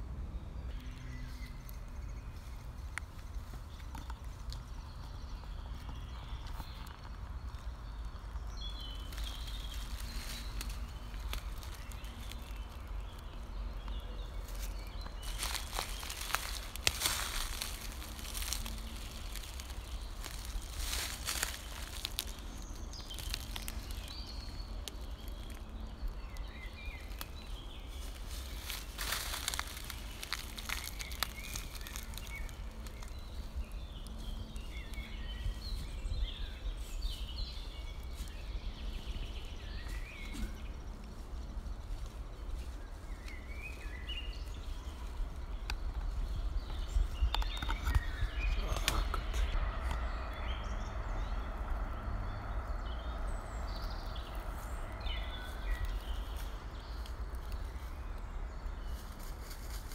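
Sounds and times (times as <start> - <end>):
songbird chirps: 0.0 - 59.9
steady low rumble: 0.0 - 59.9.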